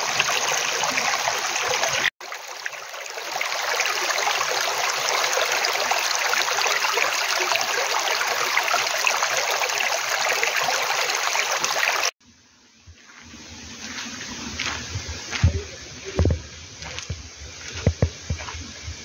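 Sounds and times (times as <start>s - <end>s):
stream rushing over rocks: 0.0s - 12.1s.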